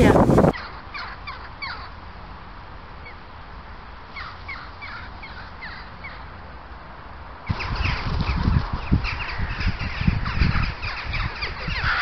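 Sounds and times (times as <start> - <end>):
crows calling: 0.2 - 2.0, 4.1 - 6.3, 7.5 - 12.0.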